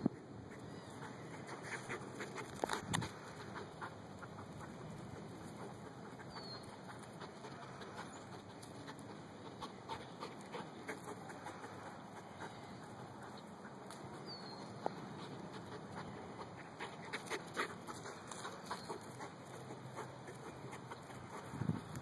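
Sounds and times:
bird chirp: 0:06.2 - 0:06.8, 0:14.1 - 0:15.1.

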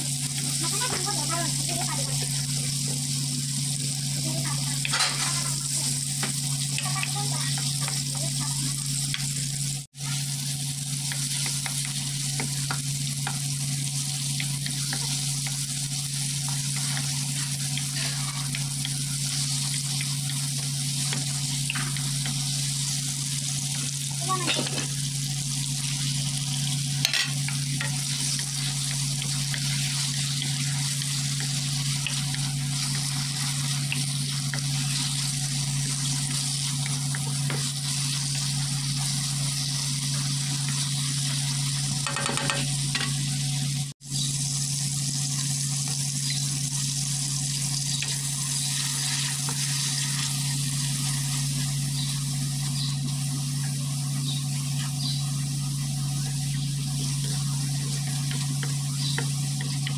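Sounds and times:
vegetables sizzling in hot oil: 0:00.0 - 0:59.9
utensil scraping wok: 0:14.7 - 0:20.4.

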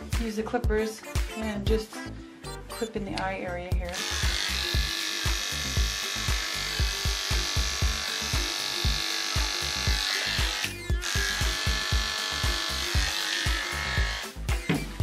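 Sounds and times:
background music with beat: 0:00.0 - 0:03.0, 0:03.7 - 0:15.0
electric clippers buzzing: 0:03.9 - 0:14.9.

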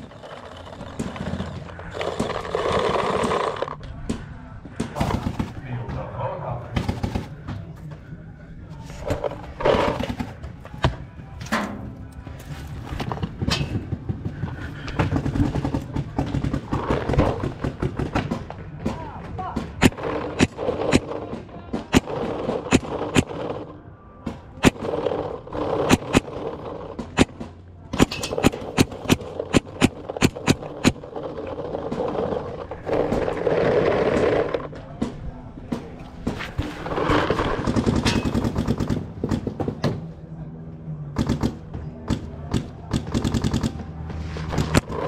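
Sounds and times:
paintball markers firing: 0:19.8 - 0:23.8, 0:24.6 - 0:34.7.

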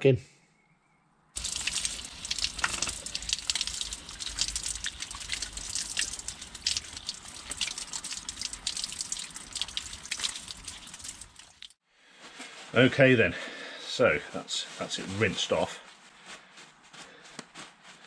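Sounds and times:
water running from a tap: 0:01.4 - 0:11.8
water splashing on ground: 0:01.4 - 0:11.8
water splashing on metal: 0:01.4 - 0:11.8.

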